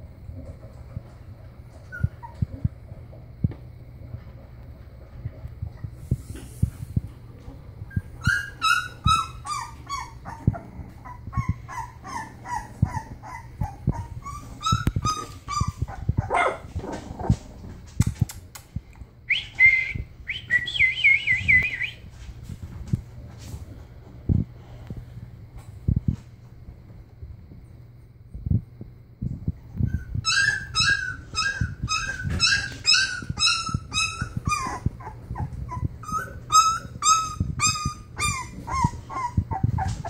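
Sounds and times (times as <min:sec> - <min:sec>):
puppies whimpering: 0:01.8 - 0:02.7, 0:07.9 - 0:16.4, 0:29.9 - 0:40.0
high drawn-out puppy squeals: 0:01.9 - 0:02.4, 0:07.9 - 0:16.4, 0:29.8 - 0:40.0
puppy yelps falling in pitch: 0:30.2 - 0:35.1, 0:35.7 - 0:39.9.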